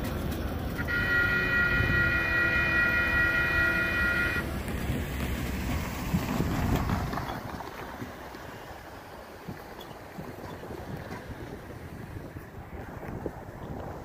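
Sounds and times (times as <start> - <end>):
low rumble of train moving: 0.0 - 14.0
locomotive air horn blast: 0.7 - 4.6.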